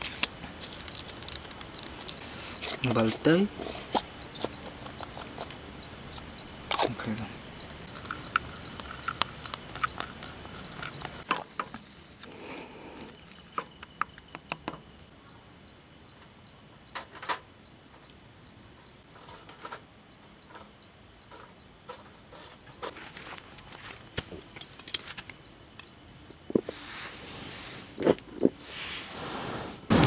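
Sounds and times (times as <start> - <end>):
high-pitched insect drone: 0.0 - 28.8
objects clicking and knocking: 7.8 - 12.4.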